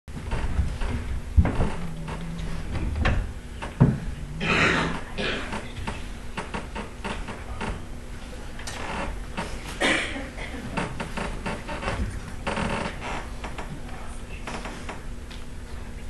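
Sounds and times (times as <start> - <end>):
short low hums: 0.1 - 9.8
knocks and thumps: 0.2 - 7.8.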